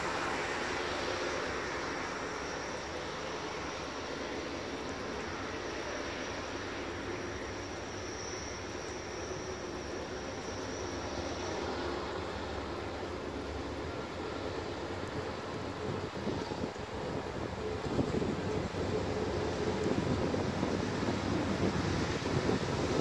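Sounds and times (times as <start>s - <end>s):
faint high steady tone: 0.0s - 15.6s
distant freight train rumble: 0.0s - 23.0s.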